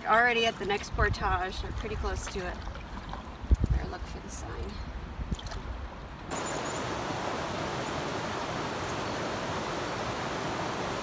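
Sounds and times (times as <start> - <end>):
waterfall rushing: 6.3 - 11.0.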